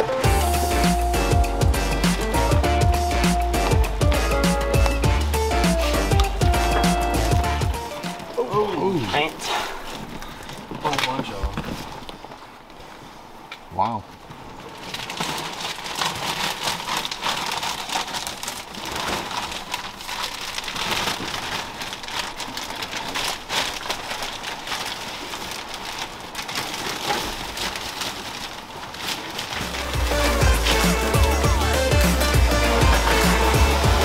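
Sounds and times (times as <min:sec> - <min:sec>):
music with heavy bass: 0:00.0 - 0:08.3, 0:29.7 - 0:34.0
carpet tearing and crackling: 0:14.2 - 0:31.4
falling debris clicks: 0:14.3 - 0:34.0.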